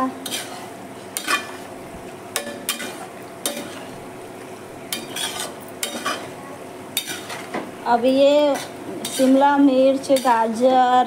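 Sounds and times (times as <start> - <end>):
pasta sizzling: 0.0 - 11.0
metal spatula scraping pan: 0.2 - 1.7, 4.9 - 6.3, 7.0 - 7.6, 8.4 - 10.5.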